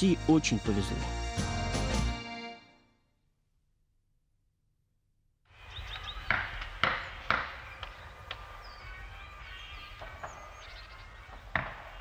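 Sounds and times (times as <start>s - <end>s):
sharp knocks: 6.3s - 8.4s.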